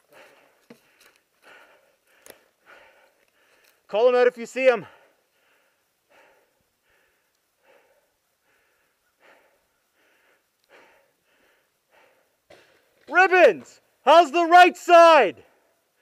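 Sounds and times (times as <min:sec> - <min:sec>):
person breathing softly: 0:00.0 - 0:03.9, 0:04.9 - 0:12.5.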